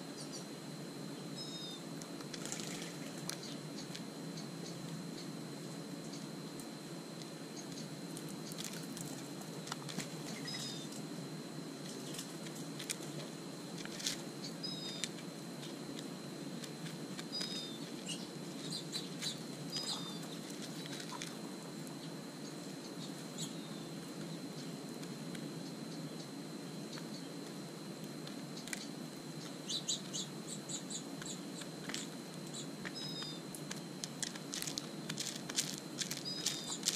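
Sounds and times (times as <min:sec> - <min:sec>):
small bird chirping: 0:01.4 - 0:01.9, 0:10.4 - 0:10.9, 0:14.4 - 0:15.8, 0:17.3 - 0:20.9, 0:22.0 - 0:23.9, 0:28.5 - 0:31.7, 0:32.5 - 0:33.4, 0:36.0 - 0:36.9
birds pecking seed from plastic dish: 0:07.6 - 0:10.8, 0:11.8 - 0:22.0, 0:28.2 - 0:36.9
thin steady high tone: 0:14.0 - 0:16.2, 0:25.6 - 0:36.9.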